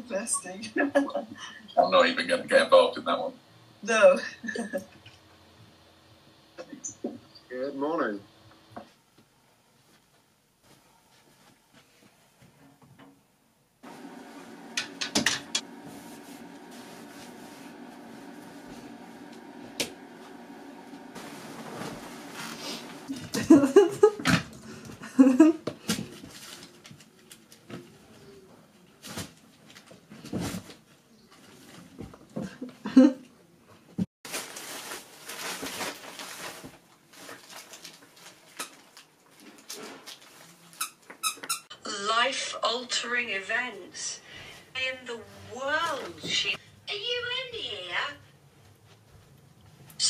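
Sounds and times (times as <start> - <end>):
steady low hum: 13.8 - 25.2
newspaper rustling and crinkling: 15.7 - 23.2, 26.0 - 27.7, 34.3 - 40.8.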